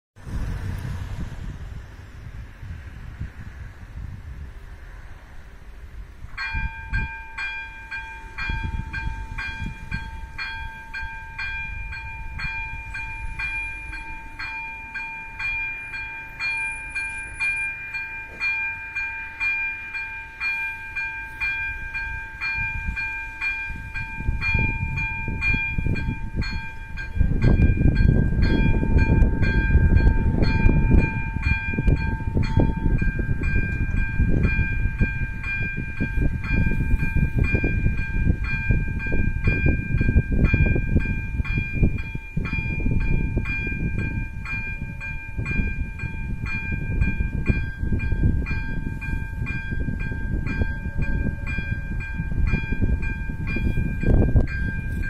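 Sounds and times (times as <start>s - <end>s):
loud low rumbling: 0.2s - 7.2s, 23.7s - 55.0s
level-crossing warning bell: 4.6s - 55.0s.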